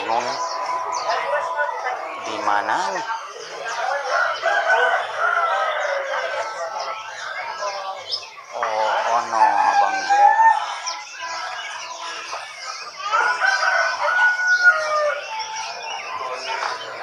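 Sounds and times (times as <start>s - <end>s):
songbirds chirping: 0.0s - 17.0s
rooster crowing: 3.8s - 6.7s, 13.0s - 15.3s.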